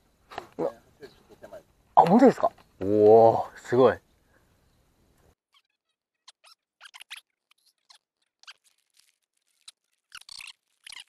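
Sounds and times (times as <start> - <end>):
handling noise crackles and squeaks: 5.2 - 11.0.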